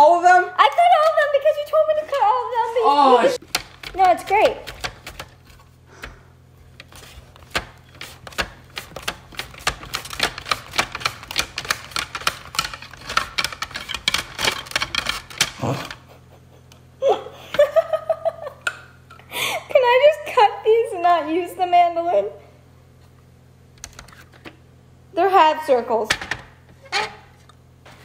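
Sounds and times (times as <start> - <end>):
laughter: 16.0 - 18.7.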